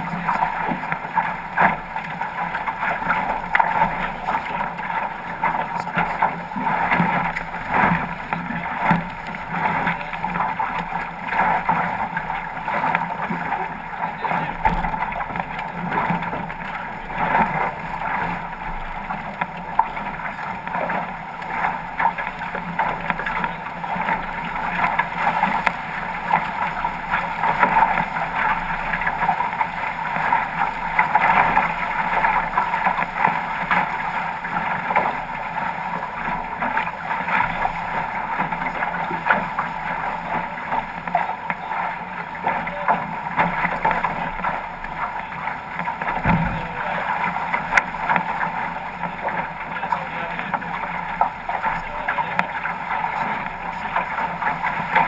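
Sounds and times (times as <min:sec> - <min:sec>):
water rushing along boat hull: 0:00.0 - 0:55.0
low thump: 0:46.2 - 0:46.7.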